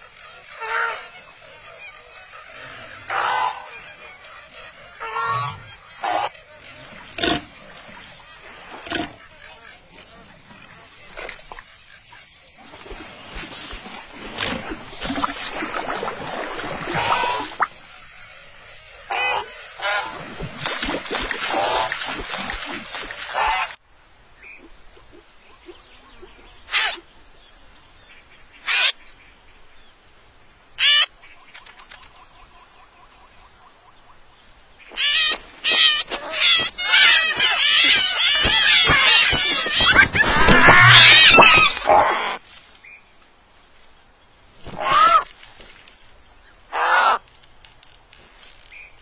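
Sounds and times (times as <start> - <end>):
baby birds squawking: 35.0 - 41.8.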